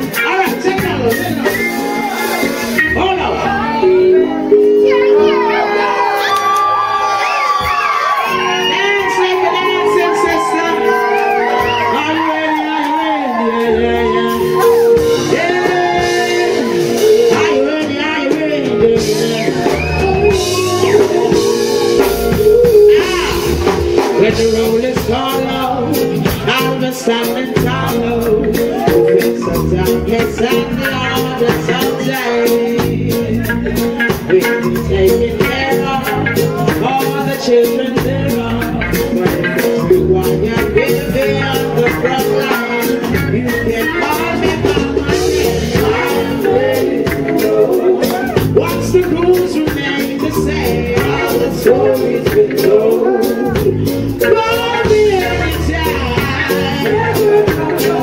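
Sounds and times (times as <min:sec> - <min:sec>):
reggae band playing: 0:00.0 - 0:58.0.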